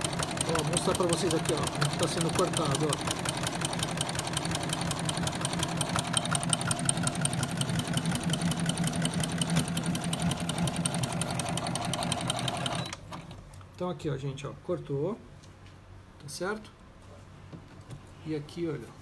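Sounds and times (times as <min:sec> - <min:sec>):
sewing machine running fast: 0:00.0 - 0:13.0.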